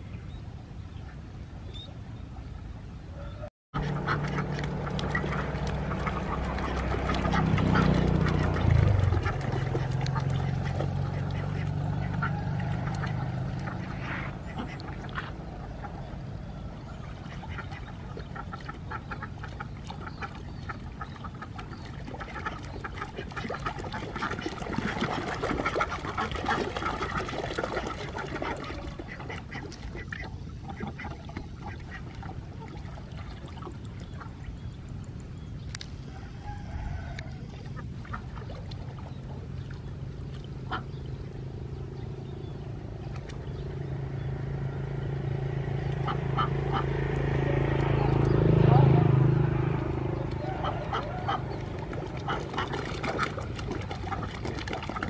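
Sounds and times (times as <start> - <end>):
ducks quacking: 3.2 - 33.2, 36.5 - 39.2, 40.6 - 41.1, 45.8 - 55.0.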